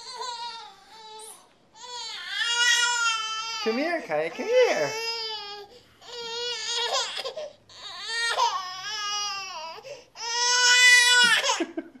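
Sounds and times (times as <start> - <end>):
infant crying: 0.0 - 11.7.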